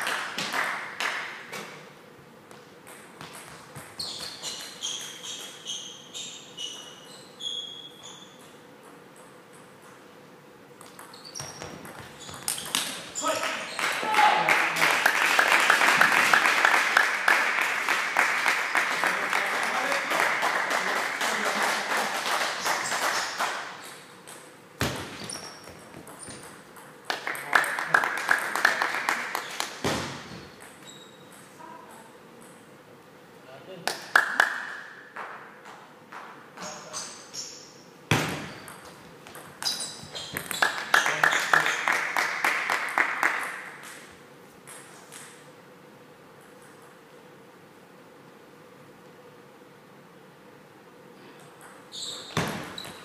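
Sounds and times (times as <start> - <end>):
spectators applauding: 13.3 - 23.6, 27.1 - 29.8, 40.6 - 43.7.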